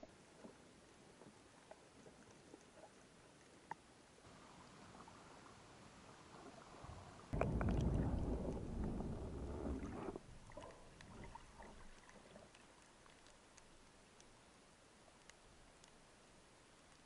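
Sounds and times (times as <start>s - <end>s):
water rushing and churning: 4.2s - 14.0s
underwater crackling clicks: 7.4s - 14.4s, 15.1s - 16.0s.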